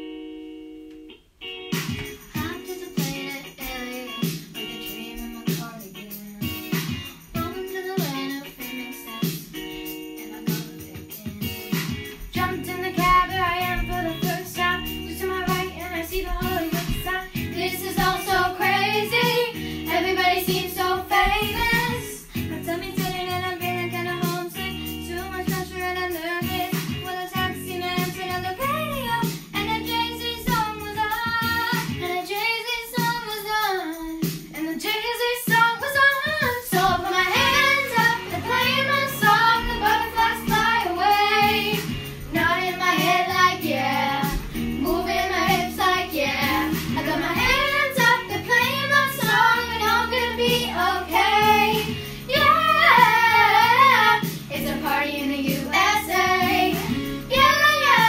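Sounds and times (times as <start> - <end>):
instrumental backing track: 0.0 - 58.0
girls singing a pop song: 1.9 - 58.0.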